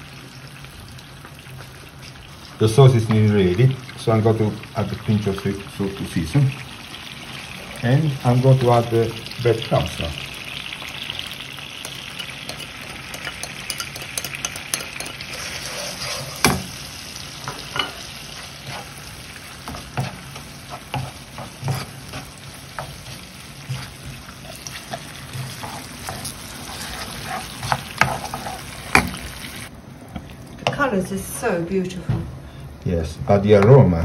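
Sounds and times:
sauce sizzling in a frying pan: 0:00.0 - 0:29.7
wooden spoon scraping a pan: 0:11.8 - 0:16.8, 0:17.4 - 0:29.7.

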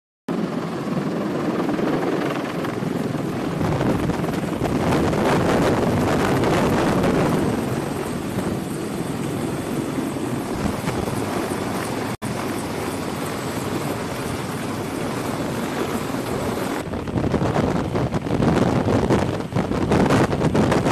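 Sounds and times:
helicopter rotor and turbine noise: 0:00.3 - 0:20.9.

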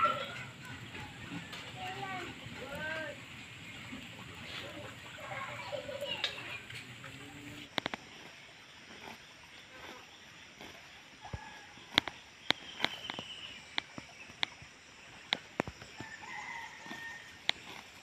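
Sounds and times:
buffalo tearing grass: 0:07.6 - 0:13.2, 0:16.8 - 0:18.0
distant rooster crowing: 0:16.0 - 0:17.5.

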